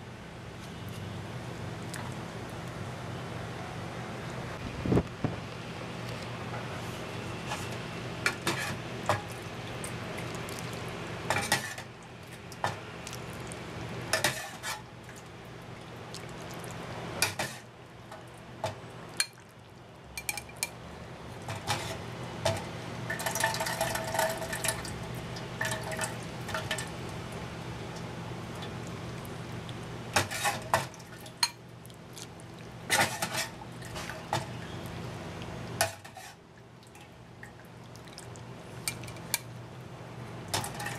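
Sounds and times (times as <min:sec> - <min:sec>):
metal ladle scraping pot and bowl: 0:30.2 - 0:30.7.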